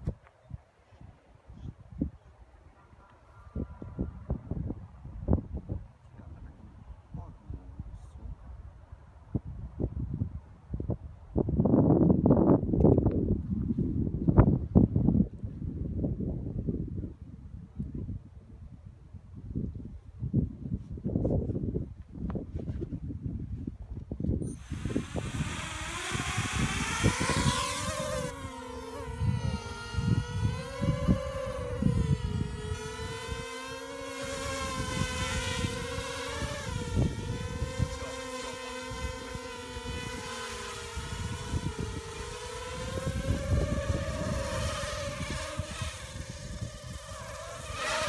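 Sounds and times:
quadcopter propellers whining: 24.4 - 48.0.

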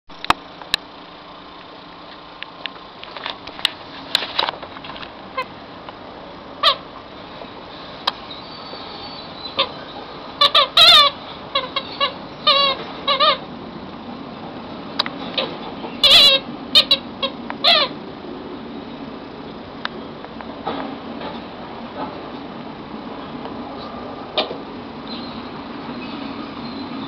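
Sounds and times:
puppy whimpering: 8.3 - 13.4.

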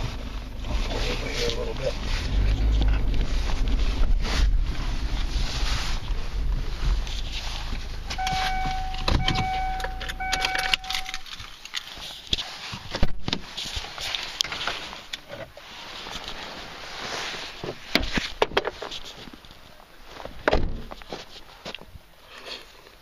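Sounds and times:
car engine running: 0.0 - 11.3
car door clicks and clunks: 8.1 - 11.3
warning chime: 8.2 - 11.2.

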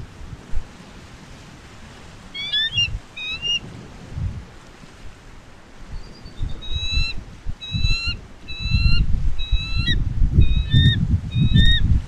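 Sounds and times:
wind buffeting microphone: 0.0 - 12.0
eagle calling with high piping notes: 2.3 - 3.6, 6.0 - 11.9.

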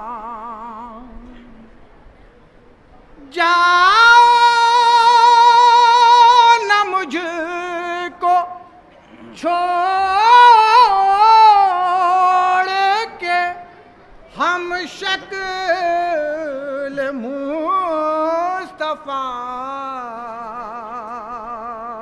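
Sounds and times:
person singing a lament: 3.2 - 13.6.

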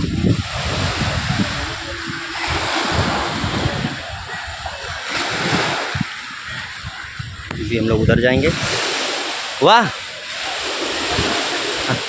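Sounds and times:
wind buffeting microphone: 0.0 - 9.6, 10.3 - 12.0
sea surf washing ashore: 0.0 - 12.0.

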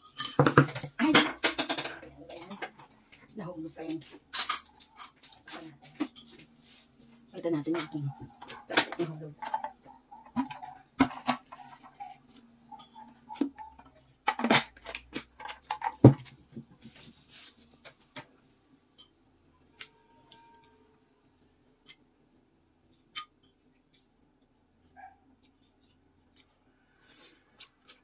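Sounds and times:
utensils and tableware clicking: 0.0 - 6.5, 7.5 - 16.1.

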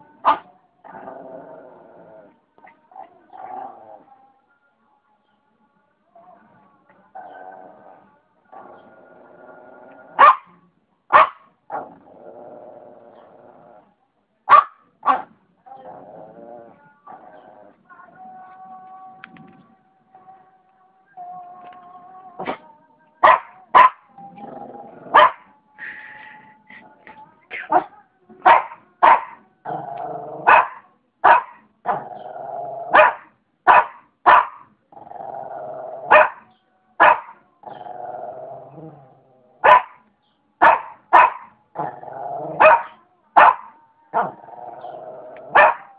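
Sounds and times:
dog barking: 0.2 - 0.5, 10.2 - 11.9, 14.5 - 15.3, 23.2 - 24.0, 25.1 - 25.4, 27.7 - 29.4, 30.4 - 32.0, 32.9 - 34.7, 36.1 - 37.4, 39.6 - 40.0, 40.6 - 41.5, 42.6 - 44.4, 45.5 - 45.9
dog growling: 0.8 - 2.4, 3.0 - 4.2, 7.2 - 10.2, 11.7 - 13.9, 15.6 - 17.8, 24.2 - 25.9, 29.6 - 30.5, 31.8 - 33.0, 34.9 - 36.2, 37.6 - 39.6, 41.7 - 42.9, 44.1 - 45.9.

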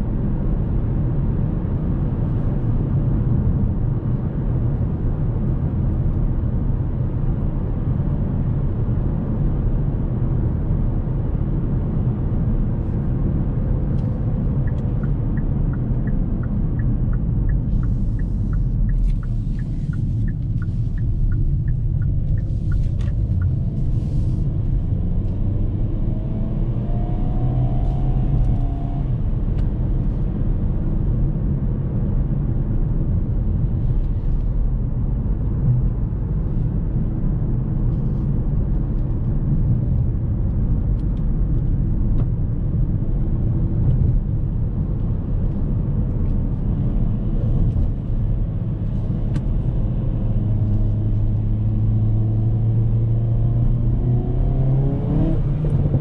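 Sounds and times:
road and tyre rumble: 0.0 - 56.0
car engine running: 13.8 - 25.3.

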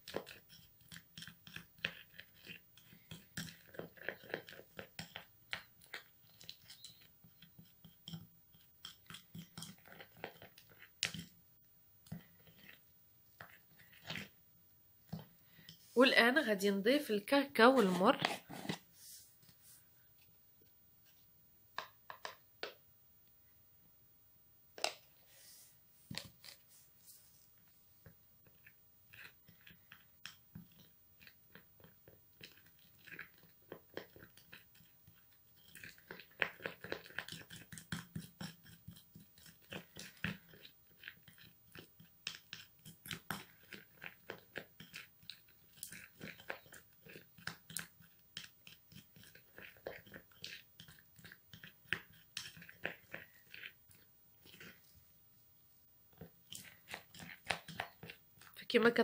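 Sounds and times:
taps and scrapes: 0.0 - 11.4, 21.8 - 22.8, 28.0 - 54.9, 56.1 - 58.6
spoon stirring thick paste: 0.0 - 22.8, 24.8 - 59.0.

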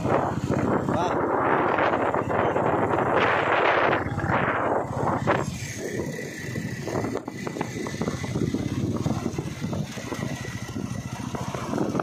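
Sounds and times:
motorcycle running: 0.0 - 12.0
wind buffeting microphone: 0.0 - 12.0.

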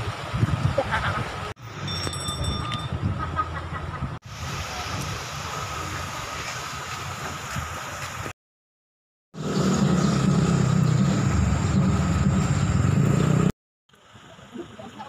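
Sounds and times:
outdoor background noise: 9.4 - 15.0.

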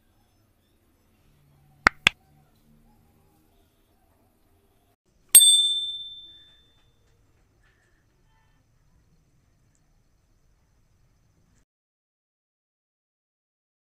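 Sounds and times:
mouse clicks: 1.9 - 2.2
bright bell ding: 5.4 - 6.8.

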